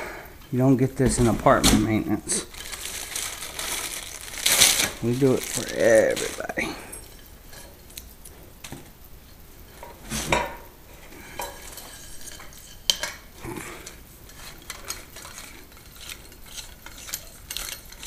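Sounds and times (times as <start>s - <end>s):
metal tube clinks and scrapes: 11.4s - 18.0s.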